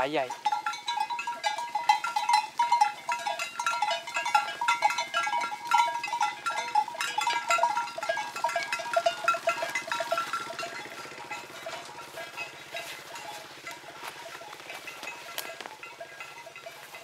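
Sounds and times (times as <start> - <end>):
cattle bells clanking: 0.0 - 17.0
small motorcycle engine running: 7.4 - 16.3.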